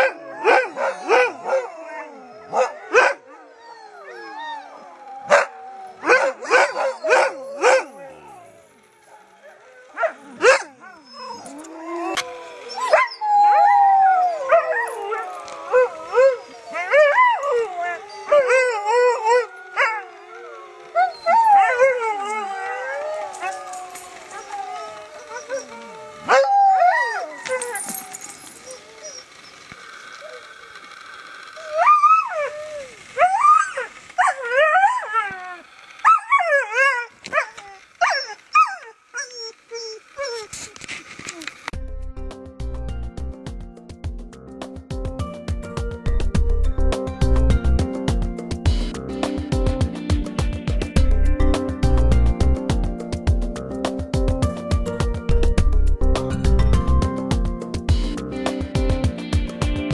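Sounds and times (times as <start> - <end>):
huskies howling: 0.0 - 40.7
dog yips: 9.1 - 13.3, 25.2 - 29.6, 36.0 - 40.5.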